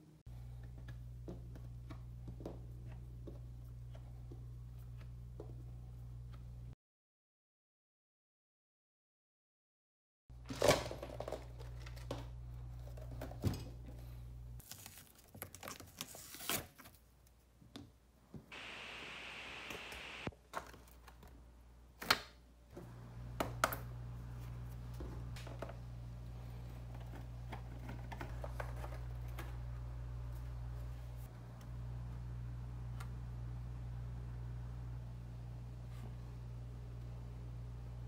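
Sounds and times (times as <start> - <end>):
low steady hum: 0.0 - 6.8, 22.6 - 38.0.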